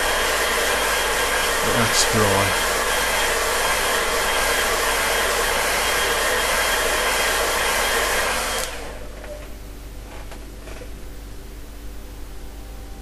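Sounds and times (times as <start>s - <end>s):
hairdryer blowing: 0.0s - 9.0s.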